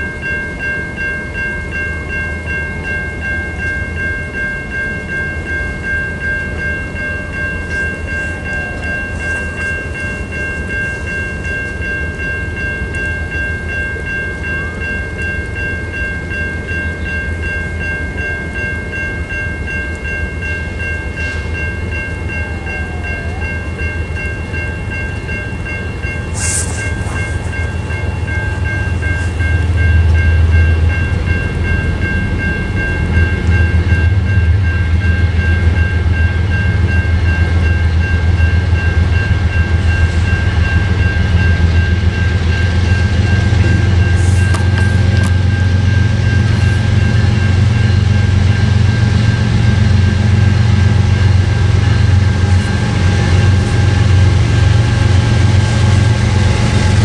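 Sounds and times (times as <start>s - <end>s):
diesel locomotive rumble: 0.0s - 57.0s
pulsing high-pitched tone: 21.0s - 57.0s
brief hiss: 26.4s - 27.2s.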